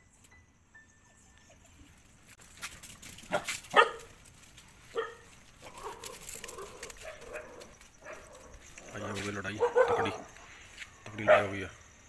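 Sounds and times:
dogs barking: 3.3 - 4.2, 4.9 - 10.5, 11.1 - 11.7.

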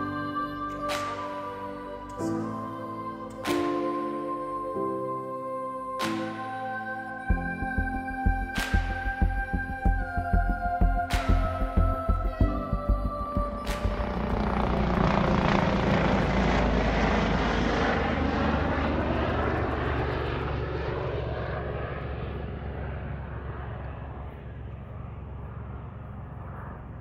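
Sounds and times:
helicopter passing overhead: 0.0 - 27.0.

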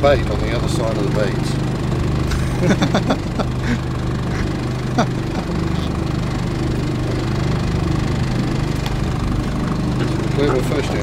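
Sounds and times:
outboard motor idling: 0.0 - 11.0.

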